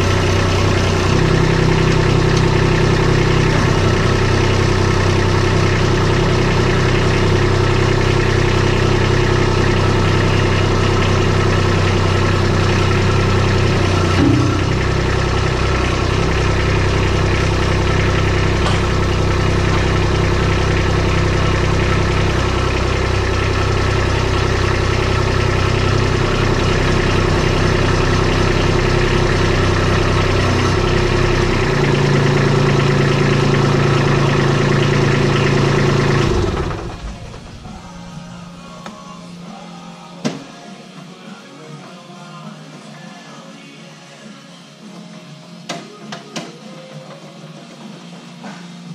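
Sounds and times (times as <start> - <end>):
tractor diesel engine running: 0.0 - 39.3.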